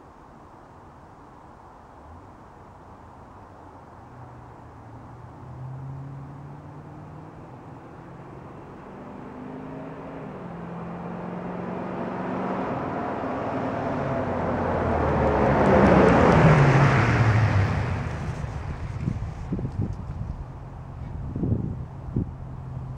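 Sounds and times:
truck engine driving past: 5.5 - 22.9.

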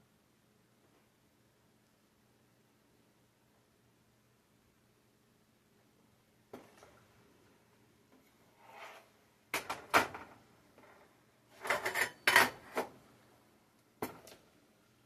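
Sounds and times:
soft scrape: 8.2 - 9.2.

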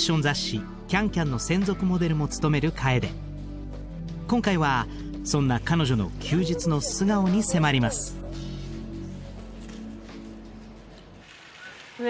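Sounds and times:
soft music with sustained notes: 0.0 - 11.2.

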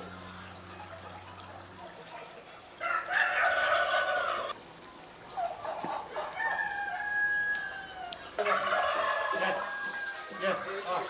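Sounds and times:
rooster crowing: 2.8 - 4.6, 6.1 - 10.6.

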